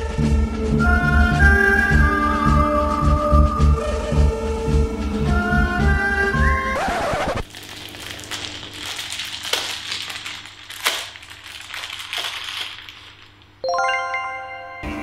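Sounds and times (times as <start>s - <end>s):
card packet crinkling: 7.4s - 13.6s.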